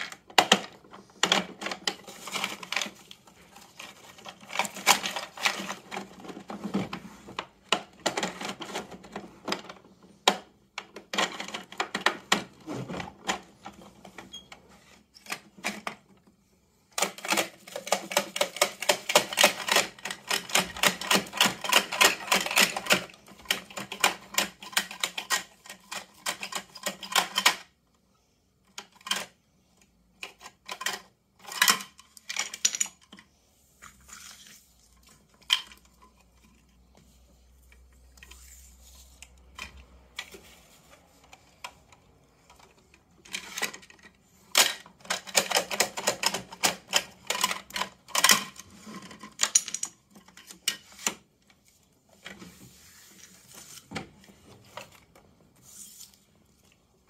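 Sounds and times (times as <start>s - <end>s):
rapid plastic toy clicking: 16.9s - 27.6s, 43.4s - 48.7s.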